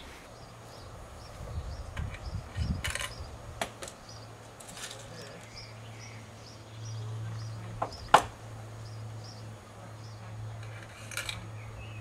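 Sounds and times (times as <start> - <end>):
small bird chirping: 0.3 - 3.4, 4.0 - 4.4, 5.0 - 8.2.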